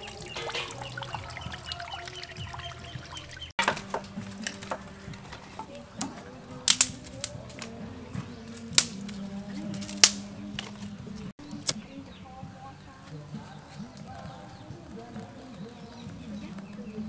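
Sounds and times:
stick knocking a clay stove: 0.0 - 11.8.

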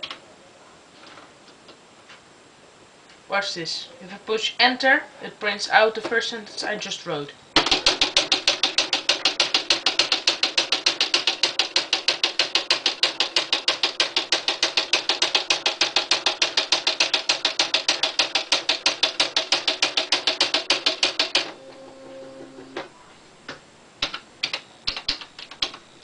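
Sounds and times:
typewriter print strikes: 7.6 - 22.8
typewriter motor hum: 7.6 - 22.9.

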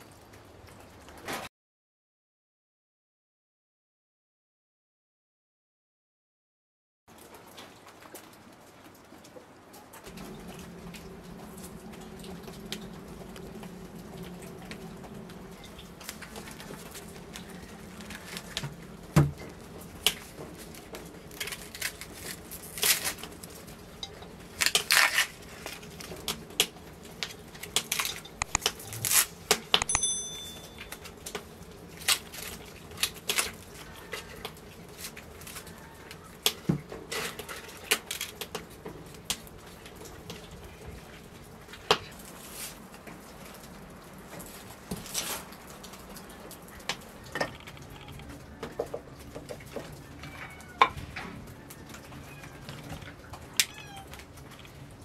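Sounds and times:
high ringing clink: 29.8 - 31.1
knocks and clinks of handling: 29.8 - 31.1.

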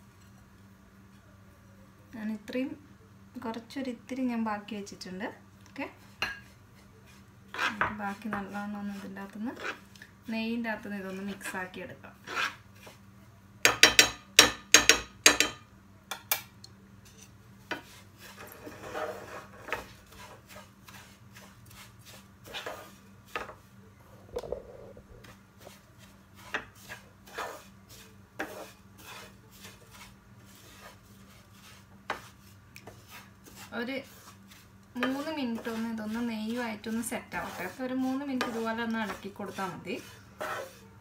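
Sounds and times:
utensils scraping frying pan: 6.0 - 9.9, 12.2 - 13.0, 17.0 - 23.7, 25.1 - 41.0.

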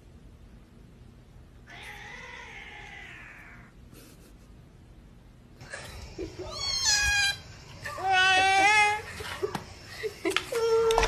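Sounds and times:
cat meowing: 1.7 - 3.7, 6.4 - 9.0.

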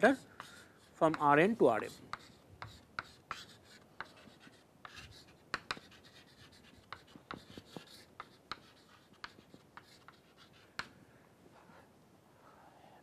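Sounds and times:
chalk scratching: 0.0 - 10.9
chalk tapping on chalkboard: 0.0 - 11.0.

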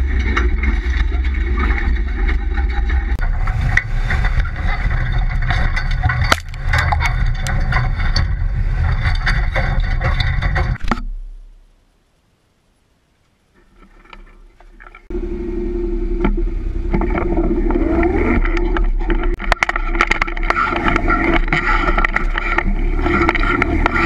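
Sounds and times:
knocks and clatters from bumps: 0.0 - 11.6, 16.2 - 24.0
truck body rattling: 0.0 - 11.6
truck engine rumble: 0.0 - 11.8, 14.4 - 24.0
tyres on dirt: 0.0 - 11.8, 13.5 - 24.0.

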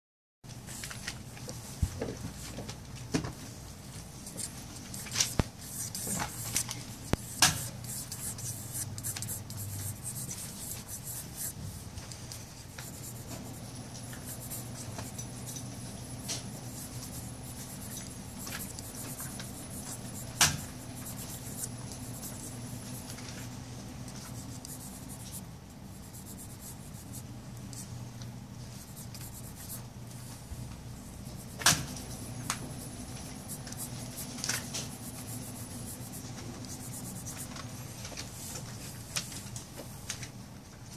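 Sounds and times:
pencil scratching on card: 4.3 - 23.5, 24.2 - 27.9, 28.7 - 29.8, 31.3 - 37.7.

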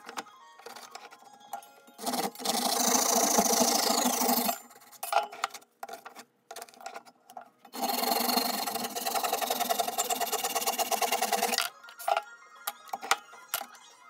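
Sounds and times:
hand saw cutting wood: 2.0 - 5.0, 7.7 - 11.6.

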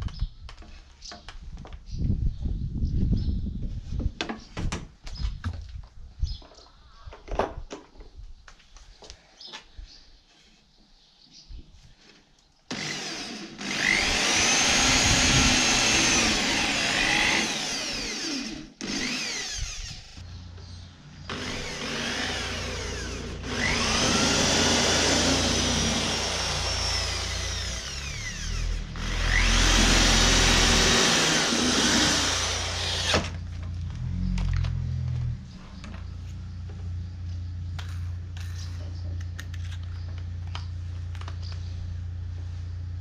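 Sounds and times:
electric drill drilling into wood: 12.7 - 20.2, 21.3 - 33.4.

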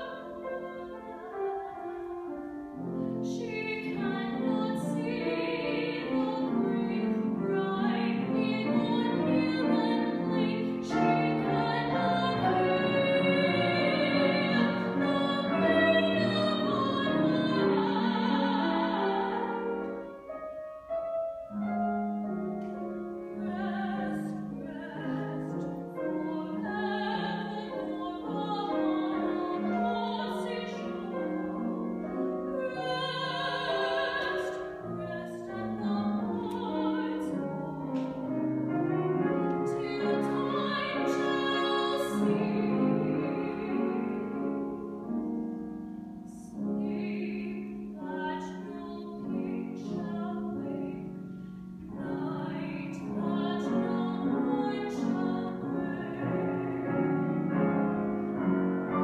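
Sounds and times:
grand piano: 0.0 - 59.0
woman singing operatically: 3.2 - 19.8, 23.4 - 31.9, 32.5 - 38.3, 39.4 - 44.4, 46.3 - 51.0, 51.9 - 56.7.

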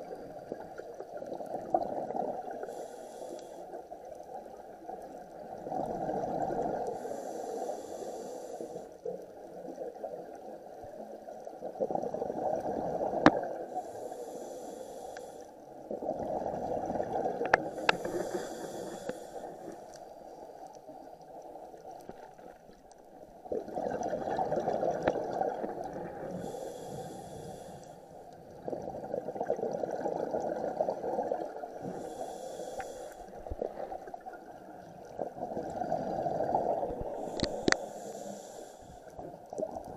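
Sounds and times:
exhaled air bubbling underwater: 0.0 - 39.9
diver inhaling through regulator: 2.5 - 3.8, 6.8 - 9.0, 13.7 - 15.6, 17.5 - 19.9, 26.2 - 28.2, 31.8 - 33.9, 37.0 - 39.2.

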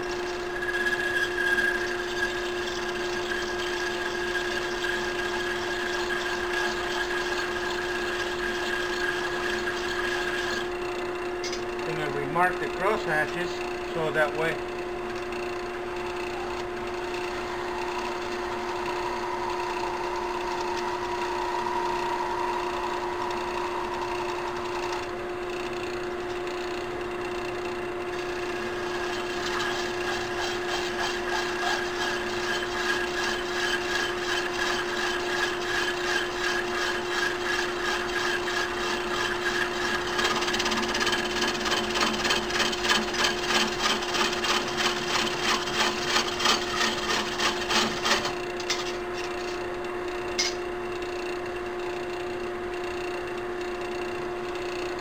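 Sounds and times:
knurling tool rasping: 0.0 - 10.7, 28.2 - 49.3
lathe humming: 0.0 - 51.4.

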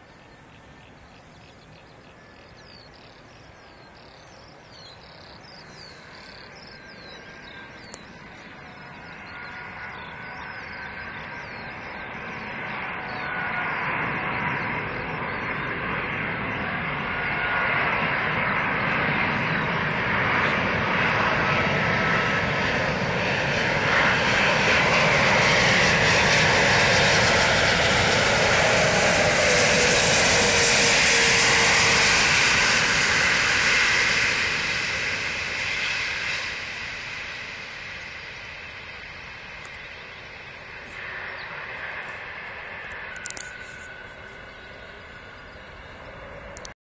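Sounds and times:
jet engines rumbling and whining: 0.0 - 46.8.

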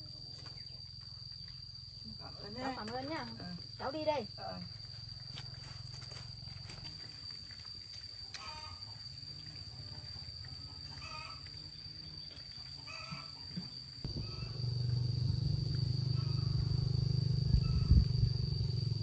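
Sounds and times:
high insect drone: 0.0 - 19.0
low rumble: 14.1 - 19.0.

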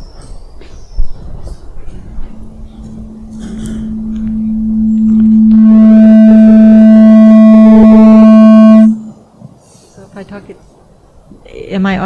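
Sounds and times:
microphone feedback howl: 0.9 - 9.3.

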